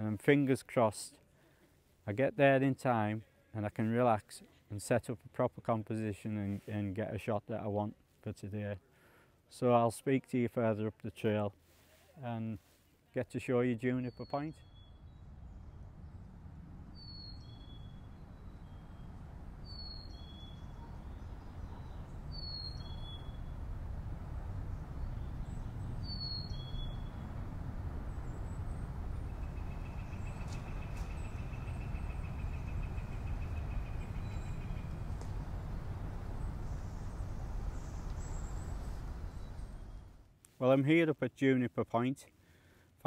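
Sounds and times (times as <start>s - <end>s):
bird trill: 14.1s - 15.8s, 16.9s - 23.6s, 24.8s - 27.4s, 28.0s - 40.1s
low outdoor rush: 14.6s - 40.3s.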